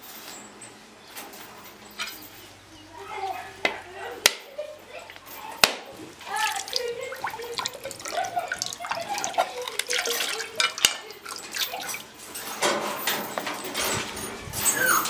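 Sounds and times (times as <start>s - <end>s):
water pouring into metal basin: 6.3s - 12.2s.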